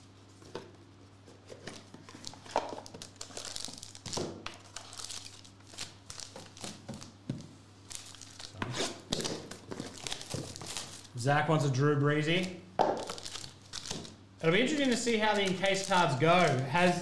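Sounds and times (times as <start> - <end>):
foil wrapper crinkling and tearing: 1.8 - 7.2, 7.9 - 11.2, 12.3 - 17.0.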